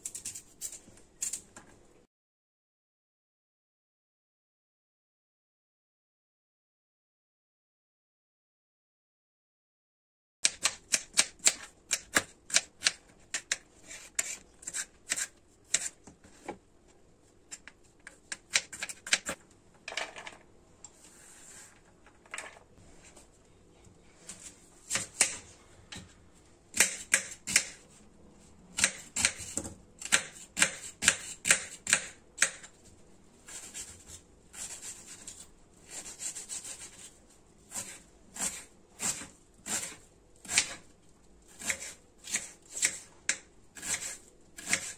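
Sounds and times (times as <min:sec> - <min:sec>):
knife chopping on cutting board: 0:41.6 - 0:44.9.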